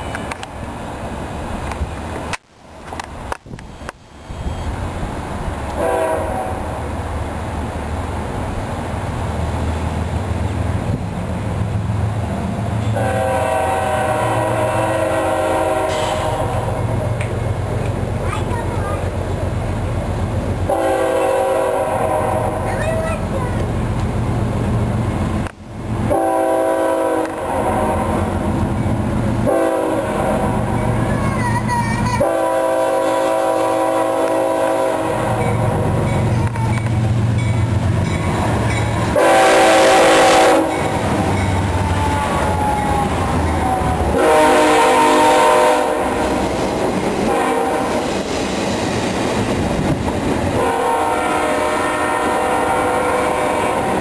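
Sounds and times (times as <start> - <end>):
locomotive engine rumbling: 0.0 - 54.0
locomotive air horn blast: 5.8 - 6.8, 12.9 - 16.9, 20.7 - 22.7, 26.1 - 28.3, 29.4 - 30.7, 32.2 - 36.0, 39.1 - 46.5, 47.2 - 48.1, 50.6 - 54.0.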